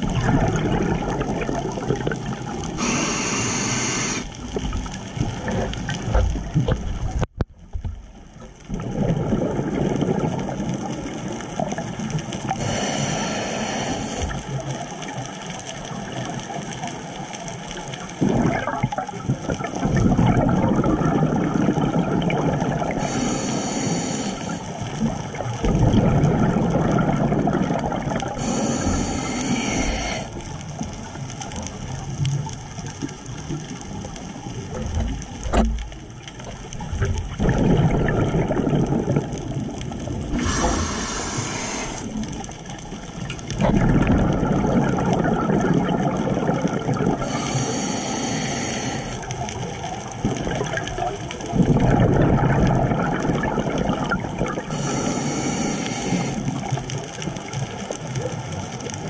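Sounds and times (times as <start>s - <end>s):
exhaled air bubbling: 0.0s - 7.4s, 8.0s - 59.0s
diver inhaling through regulator: 2.8s - 4.4s, 12.5s - 14.5s, 22.9s - 24.8s, 28.2s - 30.4s, 40.3s - 42.4s, 47.1s - 49.4s, 54.6s - 56.7s.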